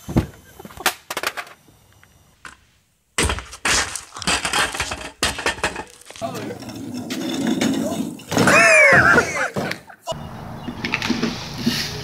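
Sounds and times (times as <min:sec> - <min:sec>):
sharp knocks and thuds: 0:03.2 - 0:06.2
clattering noise: 0:03.2 - 0:09.9.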